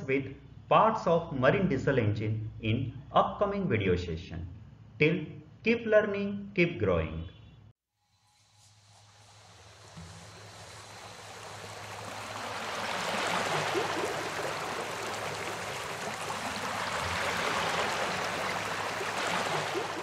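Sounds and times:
surf washing onto beach: 8.8 - 20.0.

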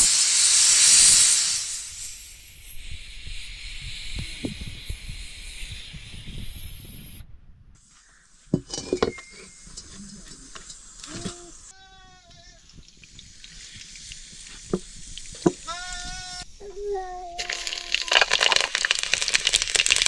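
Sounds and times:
pressure cooker hissing steam: 0.0 - 7.2.

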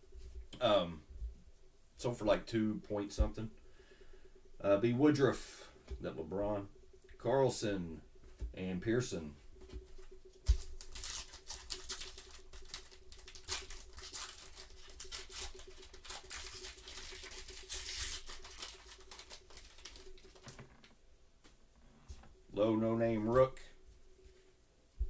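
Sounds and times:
wrapper crinkling being torn open: 10.5 - 20.8.

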